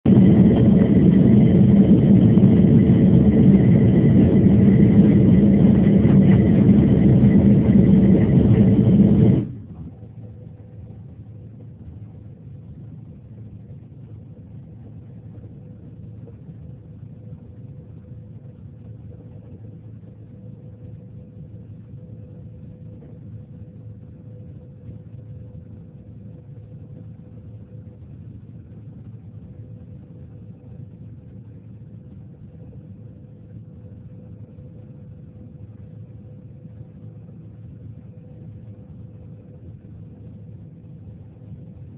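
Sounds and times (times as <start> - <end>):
jet engine and airflow roar: 0.0 - 10.8
cabin hum: 0.0 - 11.3.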